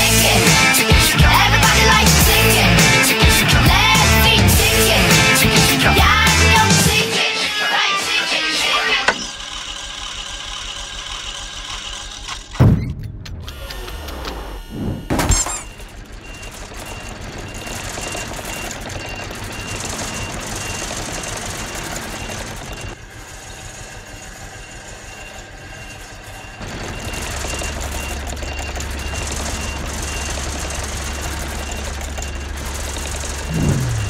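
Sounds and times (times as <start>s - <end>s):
mechanical background noise: 11.4s - 34.0s
loud thuds: 12.6s - 13.5s
high electronic beeps: 14.7s - 20.9s, 33.2s - 34.0s.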